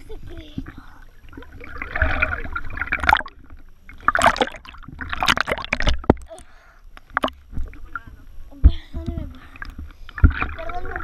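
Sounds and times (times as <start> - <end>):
pool water splashing and gurgling: 0.0 - 6.4, 9.4 - 11.0.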